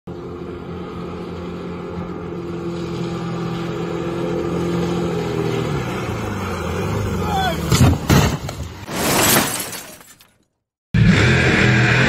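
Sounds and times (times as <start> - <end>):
speedboat engine droning: 0.1 - 7.7.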